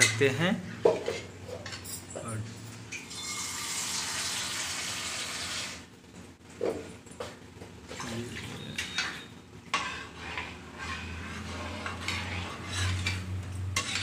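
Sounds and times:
metal spatula scraping a pan: 8.3s - 14.0s.

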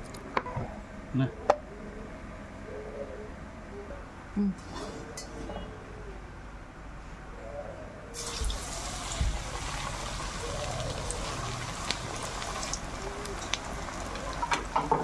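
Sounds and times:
meat sizzling and crackling in oil: 8.2s - 14.8s.

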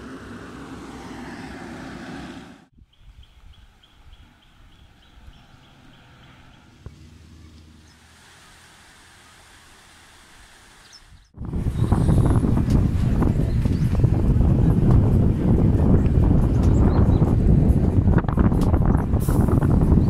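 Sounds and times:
vehicle passing: 0.0s - 2.7s, 4.2s - 8.0s
traffic hum: 0.0s - 20.0s.

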